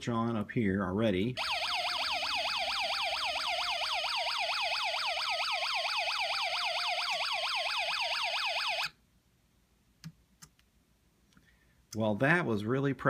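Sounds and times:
electronic police siren: 1.4 - 8.9.

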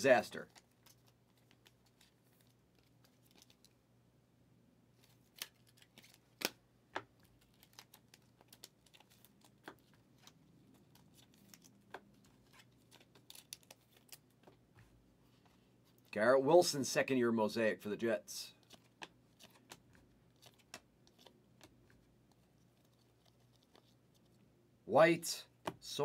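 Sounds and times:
cards and plastic holders clicking: 5.3 - 14.6, 18.6 - 23.9.

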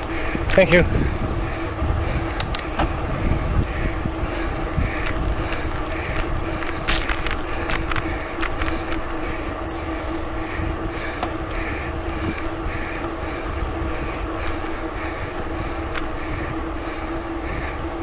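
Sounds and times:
wind on microphone: 0.0 - 11.2
bicycle tyres rumbling: 0.0 - 18.0
faint hum: 0.0 - 18.0.

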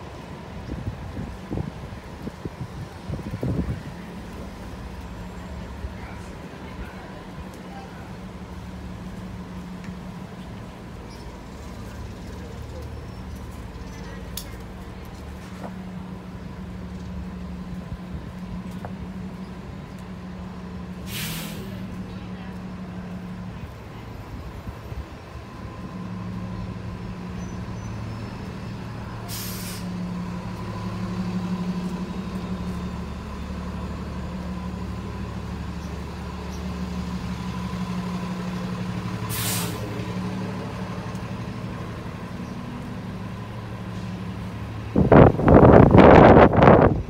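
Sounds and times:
bus diesel engine idling: 0.0 - 47.0
air brakes hissing: 21.0 - 21.9, 29.2 - 30.1, 39.1 - 40.0.

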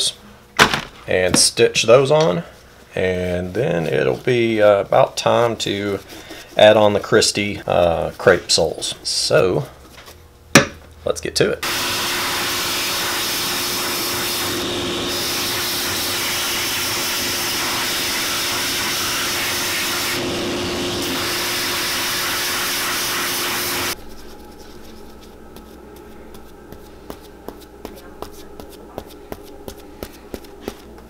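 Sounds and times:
sanding machine hissing: 11.6 - 24.0.

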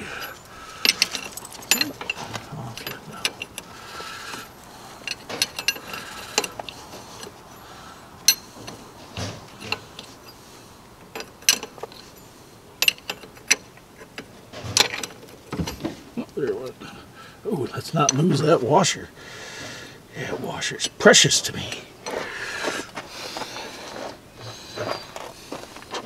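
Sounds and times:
steel tools clinking on metal: 0.0 - 16.8.

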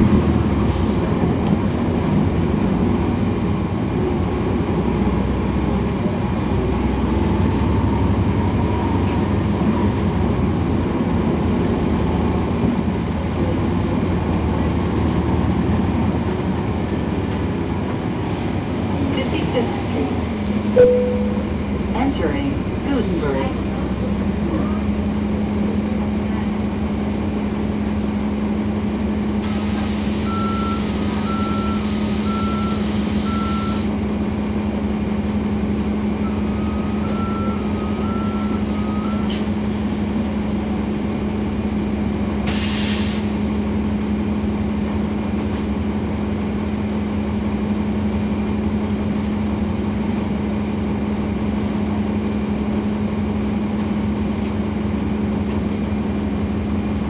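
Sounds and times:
bus diesel engine hum: 0.0 - 57.0
two-tone warning beep: 20.8 - 23.1, 30.2 - 33.8
air brake hiss: 29.4 - 31.1, 42.5 - 43.5.

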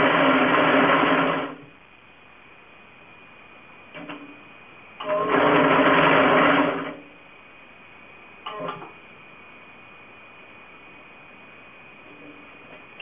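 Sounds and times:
braiding machine humming: 0.0 - 1.8, 5.0 - 7.2.

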